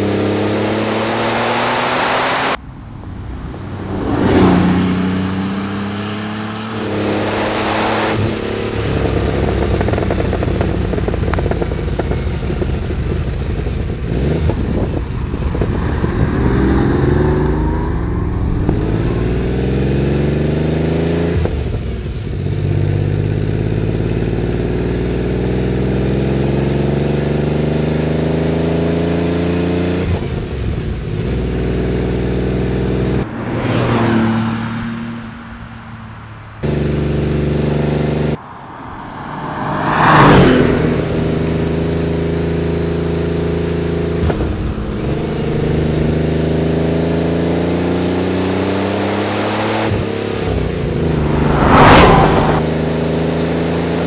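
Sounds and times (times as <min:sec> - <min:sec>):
car engine accelerating through gears: 0:00.0 - 0:02.6, 0:03.4 - 0:35.3, 0:36.6 - 0:54.0
car passing by: 0:01.2 - 0:08.2, 0:33.2 - 0:36.1, 0:38.4 - 0:41.9, 0:49.9 - 0:54.0.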